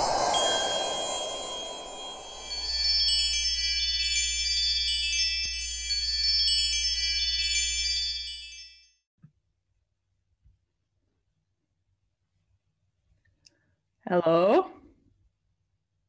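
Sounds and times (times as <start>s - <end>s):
shimmering chime tones: 0.0s - 9.0s.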